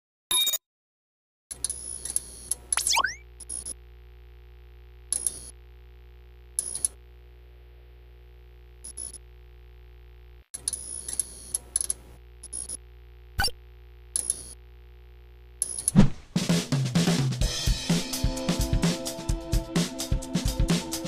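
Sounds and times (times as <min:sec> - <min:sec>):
low electronic hum: 0:02.7 - 0:10.9, 0:11.6 - 0:16.4
electronic bleeps and clicks: 0:02.8 - 0:03.2.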